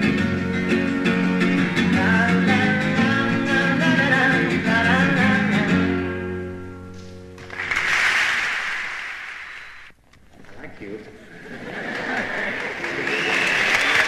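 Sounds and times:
acoustic guitar: 0.0 - 9.8
person singing: 1.6 - 5.9
audience applause: 7.4 - 9.9, 11.5 - 14.0.

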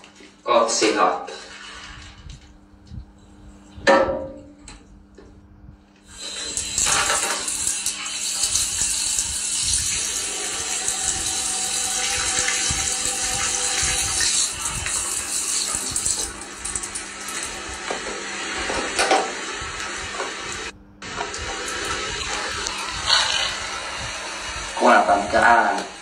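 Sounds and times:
drain hissing: 6.0 - 26.0.

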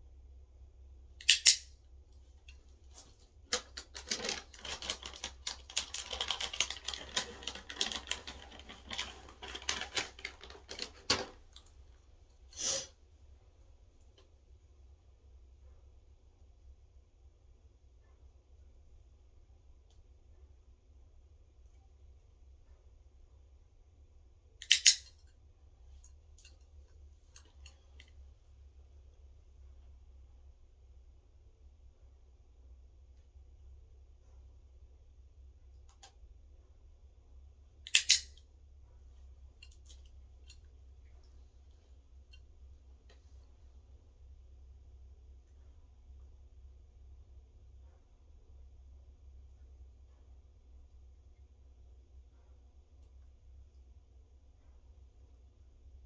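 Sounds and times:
cat crunching dry treat: 3.6 - 11.0.

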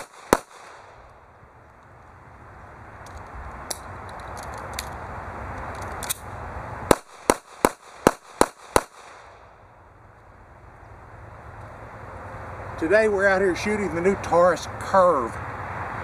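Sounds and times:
pistol shots: 0.0 - 1.0, 6.9 - 9.4.

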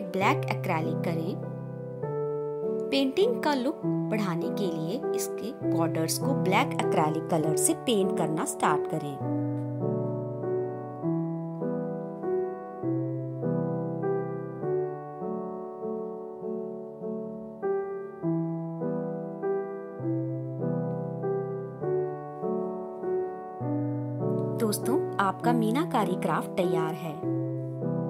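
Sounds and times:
piano music: 0.0 - 28.0.

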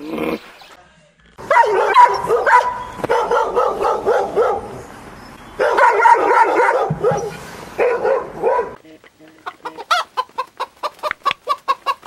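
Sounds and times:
puppy yapping and whining: 1.5 - 4.7, 5.6 - 8.8.

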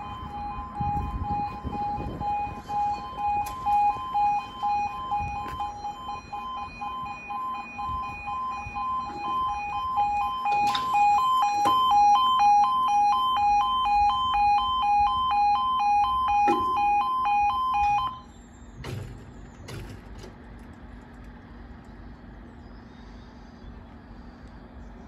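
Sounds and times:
faster warbling alarm tone: 0.0 - 18.3
two-tone warbling crossing alarm: 0.0 - 20.0.

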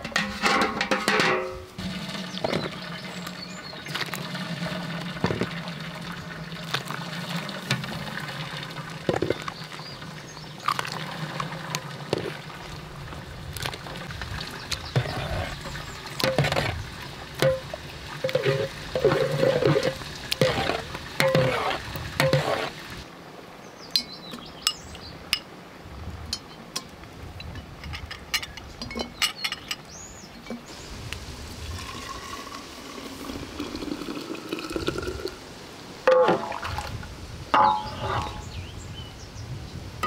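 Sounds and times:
ladle clinking against metal pot: 0.0 - 1.7, 17.4 - 22.6, 37.6 - 38.4
glass clinks: 37.6 - 38.4.

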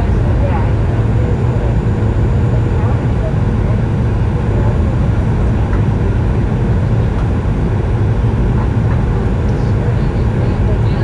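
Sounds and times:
airplane cabin rumble: 0.0 - 11.0.

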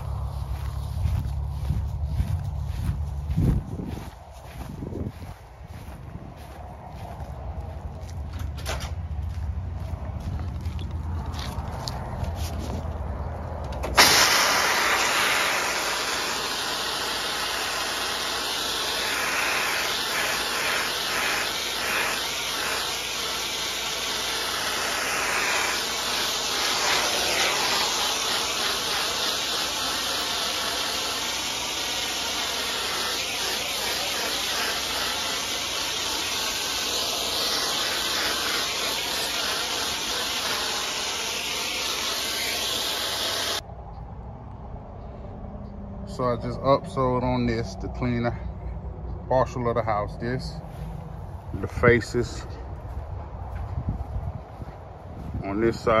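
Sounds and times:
pressure washer spray hissing: 13.9 - 43.6.

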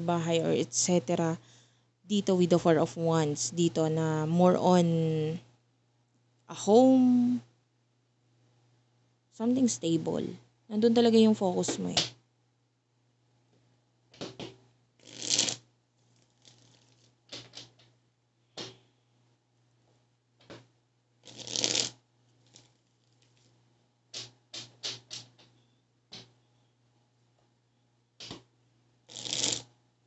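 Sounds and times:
cards being shuffled: 14.2 - 15.6, 16.2 - 17.9, 21.3 - 21.9, 24.2 - 26.3.

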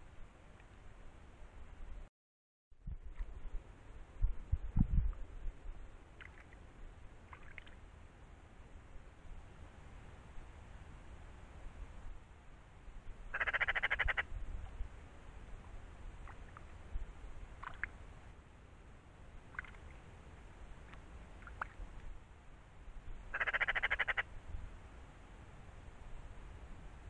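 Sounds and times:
magpie rattling chatter: 13.3 - 14.2, 23.3 - 24.2.

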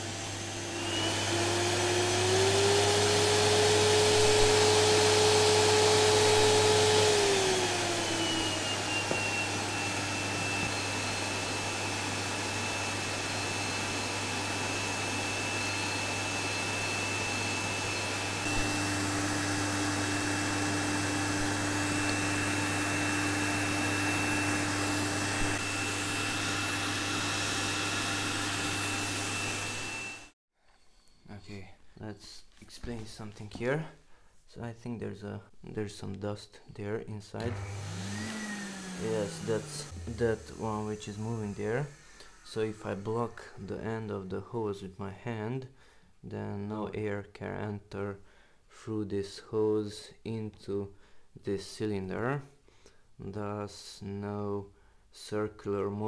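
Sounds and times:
vacuum cleaner running: 0.0 - 30.4, 37.4 - 44.1.

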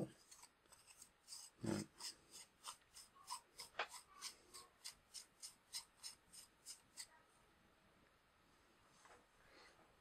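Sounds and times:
dry rubbing of lens twisting: 0.2 - 7.1.

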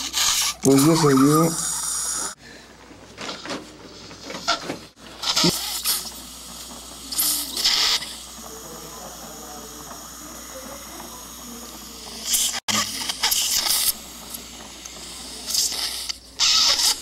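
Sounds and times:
surgical suction hissing: 0.0 - 2.4, 5.2 - 8.4, 9.4 - 17.0.

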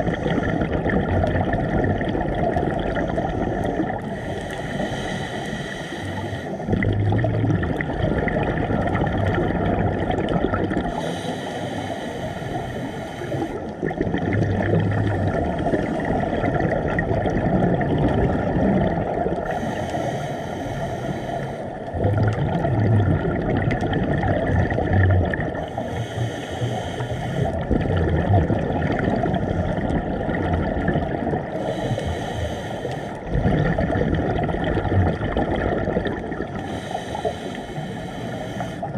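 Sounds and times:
scuba regulator breathing: 0.0 - 0.8, 2.8 - 7.1, 10.8 - 16.7, 19.3 - 22.1, 25.5 - 27.7, 29.1 - 30.2, 31.4 - 33.9, 35.9 - 38.9
bubbles burbling: 0.0 - 4.2, 6.6 - 11.0, 13.6 - 19.6, 21.8 - 25.7, 27.4 - 31.7, 33.2 - 36.7
muffled water rumble: 0.0 - 38.9.

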